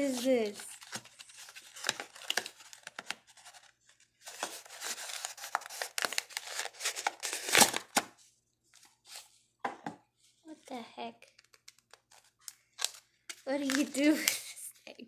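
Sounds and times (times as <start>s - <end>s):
paper packaging crinkling: 0.0s - 8.2s, 11.3s - 14.6s.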